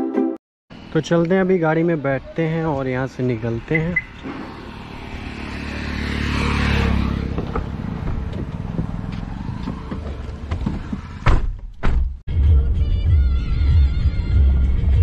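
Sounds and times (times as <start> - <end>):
vehicle passing by: 0.7 - 11.2
car door shutting: 9.6 - 12.2.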